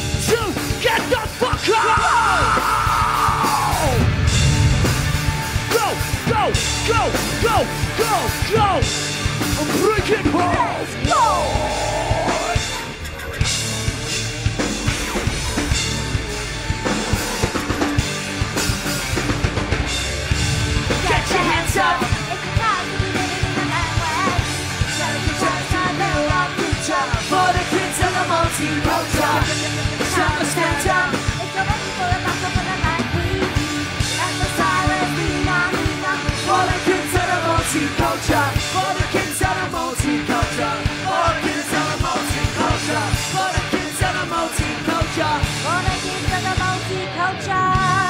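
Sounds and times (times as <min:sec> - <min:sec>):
bass guitar: 0:00.0 - 0:48.0
drum kit: 0:00.0 - 0:48.0
electric guitars: 0:00.0 - 0:48.0
live punk band playing: 0:00.0 - 0:48.0
sung and shouted vocals: 0:00.3 - 0:04.1, 0:09.7 - 0:13.0, 0:20.9 - 0:48.0.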